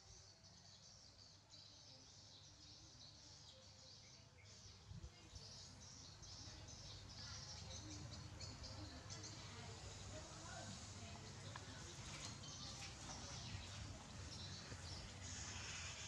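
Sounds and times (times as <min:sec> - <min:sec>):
faint high-pitched chirping: 0:00.0 - 0:16.0.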